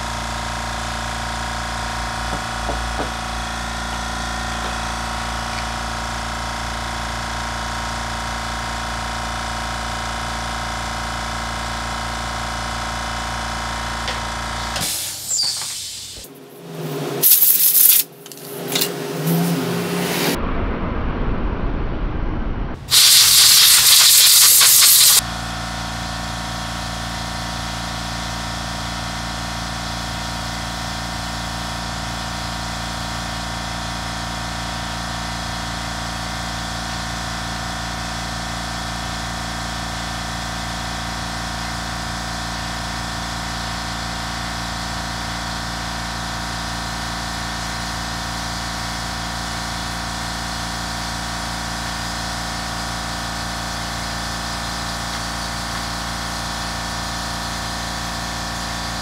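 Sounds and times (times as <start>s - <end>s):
steady machine hum: 0.0s - 15.3s
compressed air blow gun hissing: 14.8s - 16.3s, 22.8s - 25.2s.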